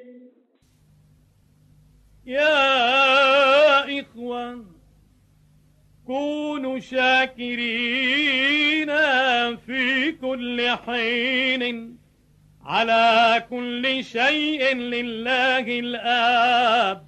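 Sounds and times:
man chanting: 0:12.7 - 0:17.0.

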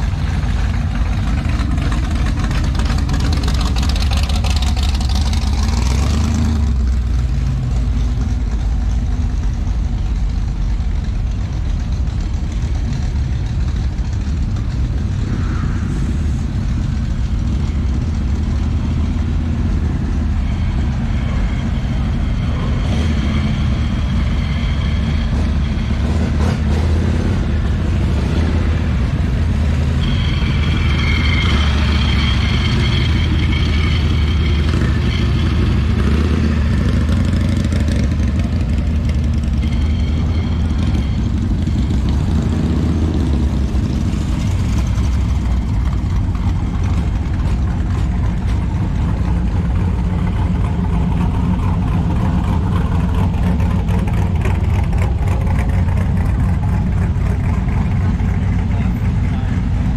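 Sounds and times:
deep car engine exhaust rumble: 0:00.0 - 0:59.9.

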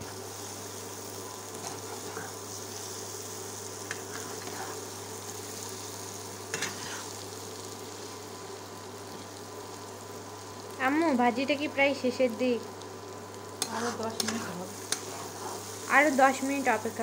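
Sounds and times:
food sizzling in oil: 0:00.0 - 0:17.0
spatula scraping a wok: 0:03.9 - 0:04.9, 0:06.5 - 0:07.2, 0:13.6 - 0:15.9.

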